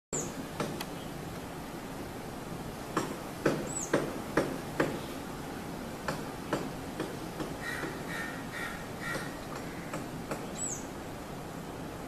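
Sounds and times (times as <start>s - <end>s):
steady hiss: 0.2s - 12.0s
high bird chirp: 10.5s - 10.9s.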